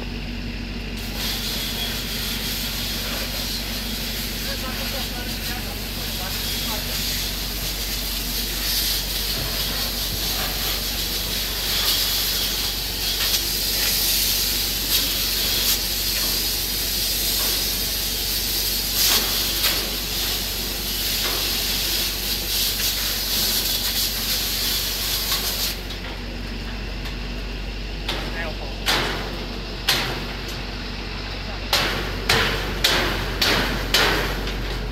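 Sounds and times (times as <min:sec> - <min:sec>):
fire hose spraying water: 0:00.9 - 0:26.0.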